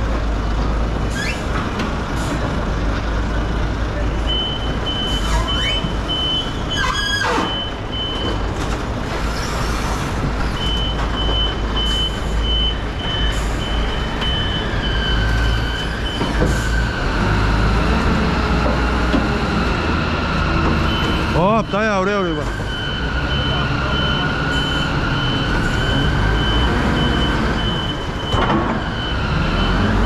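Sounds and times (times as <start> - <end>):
brief squeal: 1.1 - 1.5
forklift engine running: 7.5 - 30.0
warning beeper: 20.8 - 30.0.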